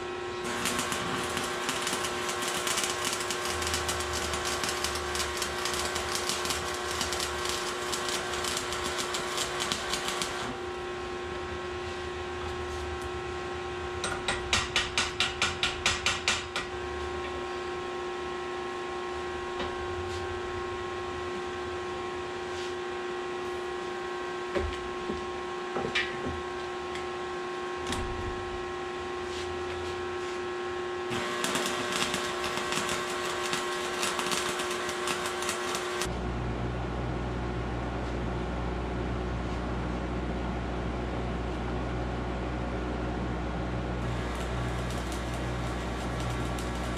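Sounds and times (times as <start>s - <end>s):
welder crackling: 0.4s - 10.6s, 31.1s - 36.1s, 44.0s - 46.9s
steady hum: 16.6s - 46.9s.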